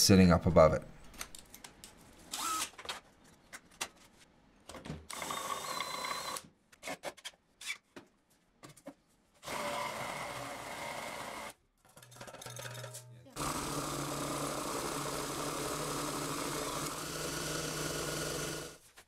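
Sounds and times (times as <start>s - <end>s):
power tools running: 9.4s - 11.5s, 13.4s - 18.8s.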